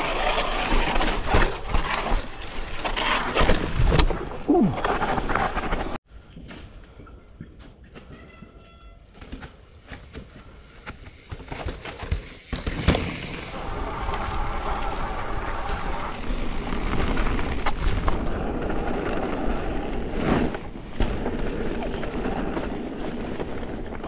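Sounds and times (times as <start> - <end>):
bike rattling: 9.2 - 24.0
bike tyres rumbling over rocks: 11.2 - 24.0.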